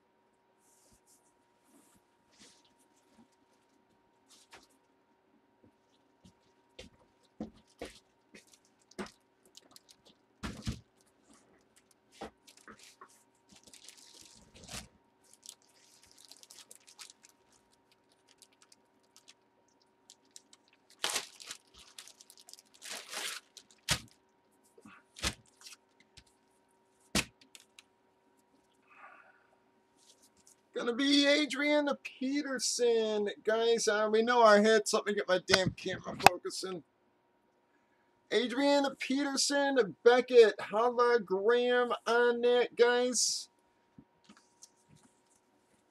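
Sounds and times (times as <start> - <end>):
plastic packaging crinkling: 5.9 - 24.3, 25.1 - 26.5, 27.1 - 27.9.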